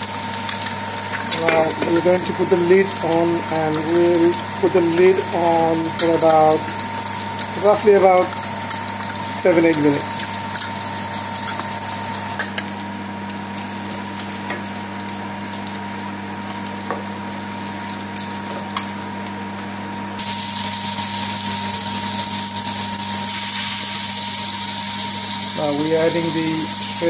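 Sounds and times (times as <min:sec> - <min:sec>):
oil sizzling in frying pan: 0:00.0 - 0:27.0
steady hum: 0:00.0 - 0:27.0.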